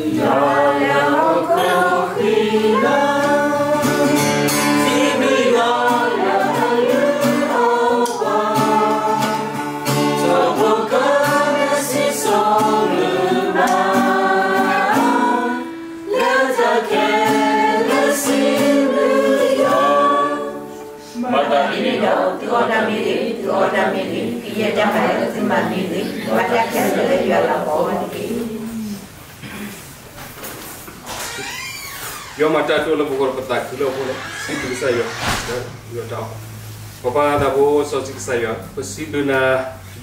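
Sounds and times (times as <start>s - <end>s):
acoustic guitar strumming: 0.0s - 28.1s
group singing a hymn: 0.0s - 29.2s.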